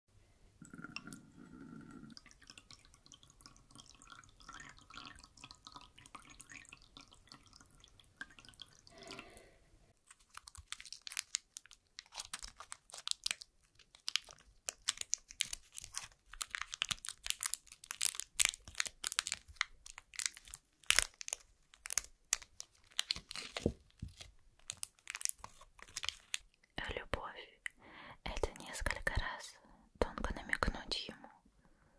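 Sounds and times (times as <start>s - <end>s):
wrapper crackling and tearing: 10.0s - 26.5s.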